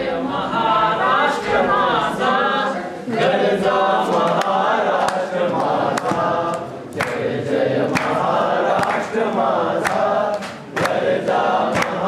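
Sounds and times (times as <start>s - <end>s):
young people singing in unison: 0.0s - 12.0s
hand claps: 4.0s - 12.0s.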